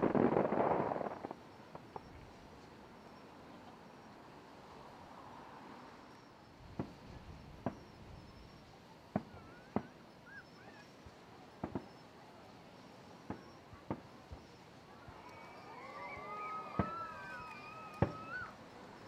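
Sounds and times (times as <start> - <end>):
distant firework bangs: 0.0 - 2.2, 6.7 - 8.0, 9.1 - 10.8, 11.5 - 12.0, 13.2 - 18.6.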